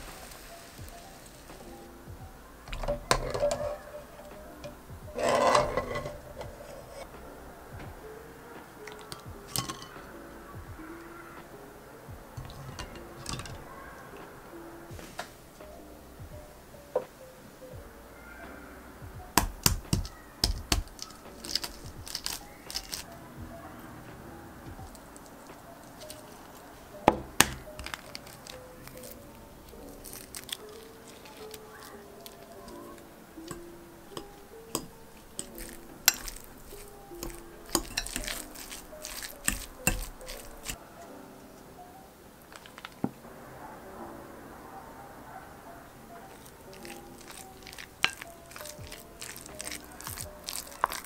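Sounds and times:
eggshell crackling: 0:00.0 - 0:07.4, 0:08.6 - 0:16.0, 0:19.3 - 0:23.2, 0:24.5 - 0:40.8, 0:42.4 - 0:43.2, 0:46.2 - 0:51.0
fork clinking on glass bowl: 0:08.9 - 0:10.0, 0:33.5 - 0:40.8, 0:46.3 - 0:51.0.

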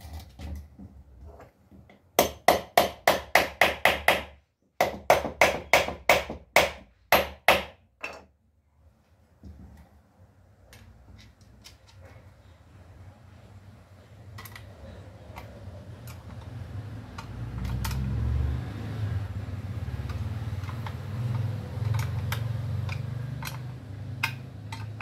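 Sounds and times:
hammer striking wood: 0:02.2 - 0:08.2.

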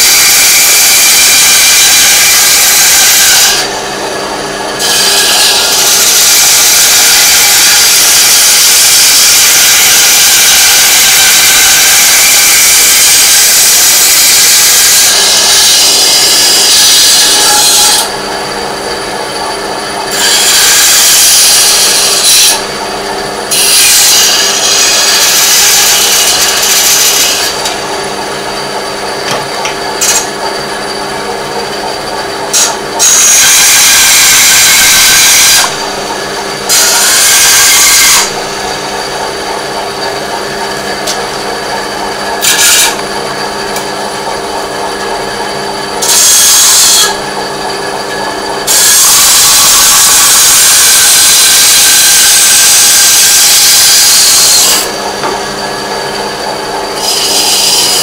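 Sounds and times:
power tool grinding metal: 0:00.0 - 0:58.0.

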